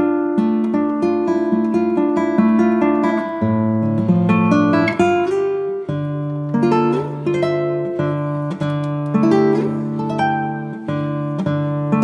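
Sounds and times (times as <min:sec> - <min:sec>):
plucked guitar piece: 0:00.0 - 0:12.0.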